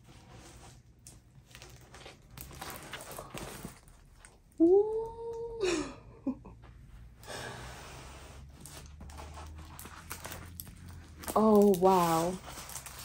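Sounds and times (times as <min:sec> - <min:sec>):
woman's wordless exclamation: 0:04.6 - 0:05.9
canvas rustling: 0:07.8 - 0:13.0.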